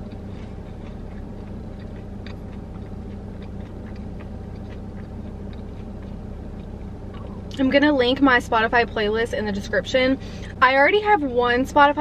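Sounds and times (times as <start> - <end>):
person chewing: 0.0 - 7.6
low hum inside car: 0.0 - 12.0.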